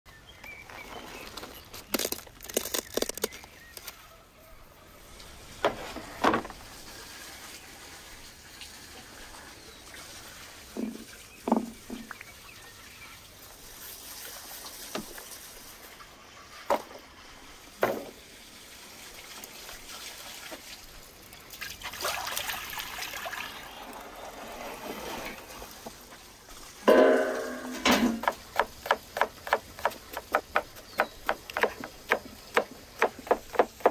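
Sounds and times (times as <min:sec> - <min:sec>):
handling knocks and rustles: 0:05.5 - 0:06.7, 0:25.6 - 0:33.9
knife chopping on wooden board: 0:28.1 - 0:33.9.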